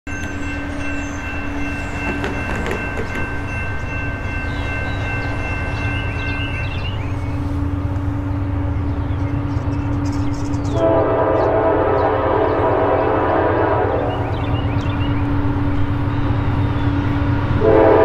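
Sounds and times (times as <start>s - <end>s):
thin high ringing tone: 0.1s - 8.4s
diesel train rumbling: 0.1s - 18.0s
higher steady train tone: 0.1s - 18.0s.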